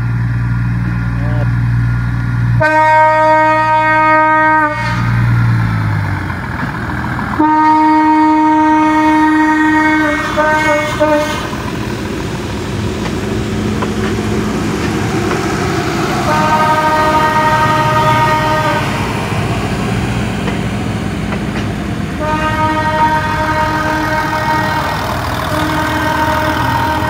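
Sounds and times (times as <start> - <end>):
train cars rumbling past: 0.0 - 27.0
train diesel engines running: 0.0 - 27.0
train horn blasts: 2.6 - 5.4, 7.4 - 11.6, 16.2 - 19.1, 22.2 - 27.0.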